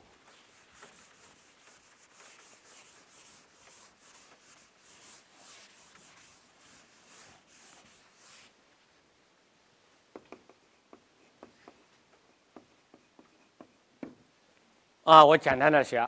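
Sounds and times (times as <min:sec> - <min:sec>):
chalkboard eraser swishing: 0:00.2 - 0:08.5.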